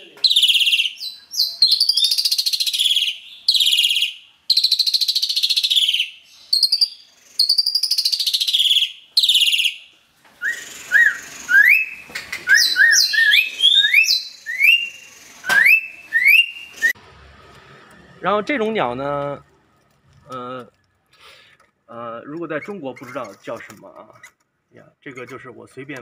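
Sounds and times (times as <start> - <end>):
rising whistled bird notes: 0.3 - 17.0.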